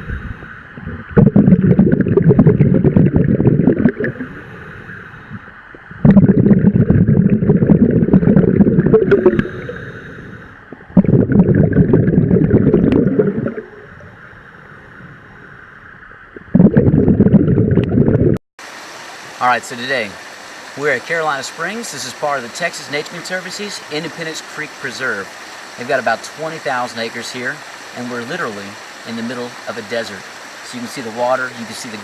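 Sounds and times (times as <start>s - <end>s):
diver exhaling bubbles: 0.0s - 18.4s.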